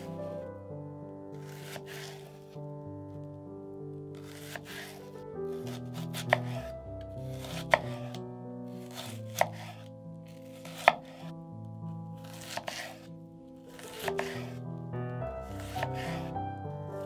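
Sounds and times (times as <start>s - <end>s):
knife slicing through onion: 1.4s - 2.5s, 4.2s - 8.2s, 8.8s - 11.3s, 12.2s - 13.1s, 13.7s - 14.6s, 15.4s - 16.3s.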